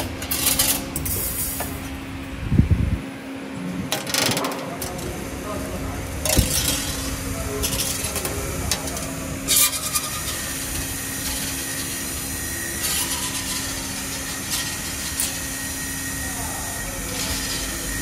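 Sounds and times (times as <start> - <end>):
machine hum: 0.0 - 18.0
hissing scraping of wire: 6.4 - 16.3.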